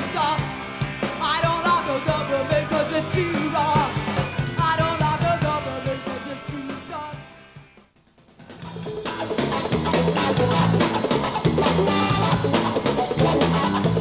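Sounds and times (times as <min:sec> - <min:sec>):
live rock band: 0:00.0 - 0:14.0
person singing: 0:01.2 - 0:04.0
drum beat: 0:08.3 - 0:14.0.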